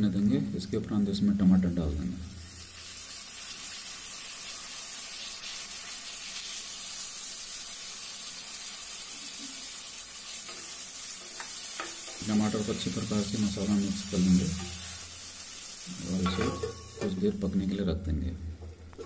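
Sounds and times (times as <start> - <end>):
vegetables sizzling in oil: 0.2 - 17.9.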